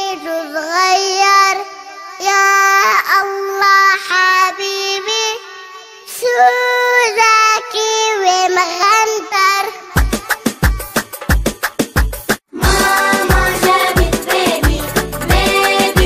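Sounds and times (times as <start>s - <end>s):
girl singing: 0.0s - 11.0s, 12.6s - 16.0s.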